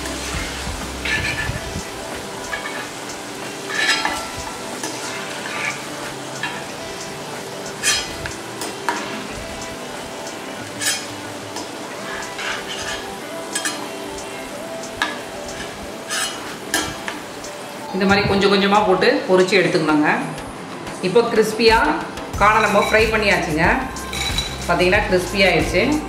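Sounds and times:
corn deep-frying in oil: 0.0 - 17.6.

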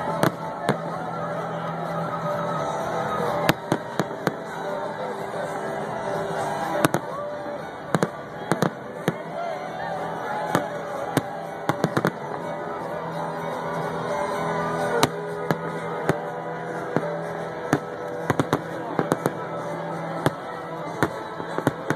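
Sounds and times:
fireworks exploding: 0.0 - 1.0, 3.2 - 5.4, 6.4 - 9.4, 10.4 - 12.6, 15.0 - 21.9
crowd voices: 0.0 - 21.9
music: 0.0 - 21.9.

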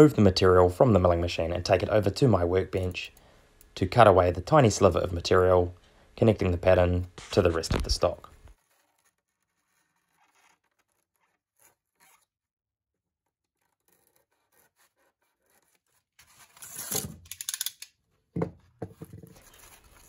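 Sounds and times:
foam scraping and tearing: 7.2 - 12.4, 13.1 - 17.2, 19.3 - 20.0
utility knife cutting foam: 8.4 - 17.3.

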